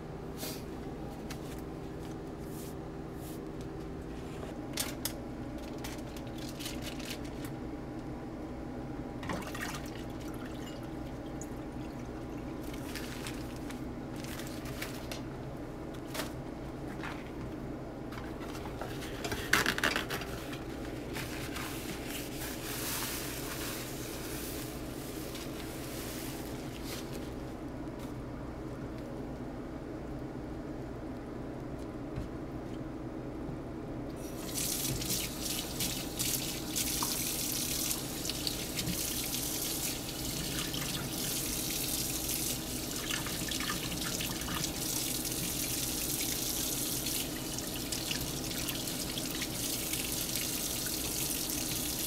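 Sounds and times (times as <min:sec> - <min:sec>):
steady low hum: 0:00.0 - 0:34.8.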